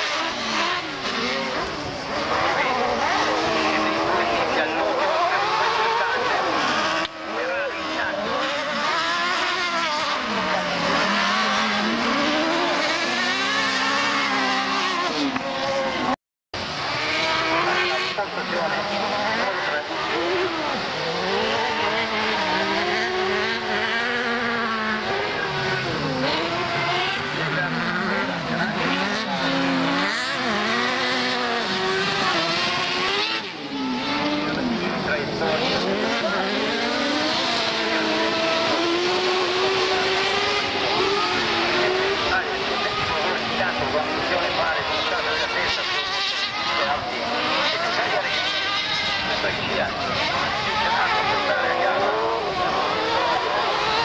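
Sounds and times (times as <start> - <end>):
buggy engines racing: 0.0 - 54.0.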